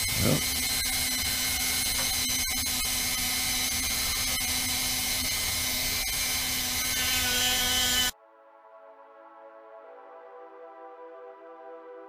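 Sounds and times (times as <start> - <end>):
rotary tool grinding wood: 0.0 - 8.2.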